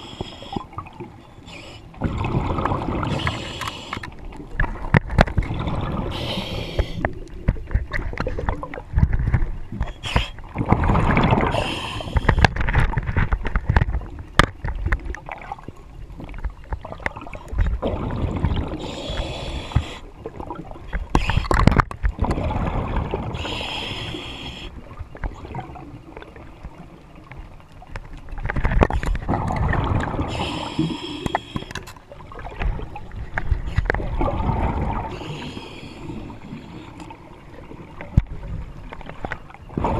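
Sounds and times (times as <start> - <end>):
diver inhaling hiss: 0.0 - 0.7, 1.4 - 2.0, 3.0 - 4.1, 6.1 - 7.1, 9.9 - 10.4, 11.5 - 12.4, 18.8 - 20.1, 23.4 - 24.8, 30.2 - 31.8, 35.1 - 37.0
exhaled bubbles gurgling: 0.0 - 13.4, 14.0 - 27.3, 28.4 - 39.9.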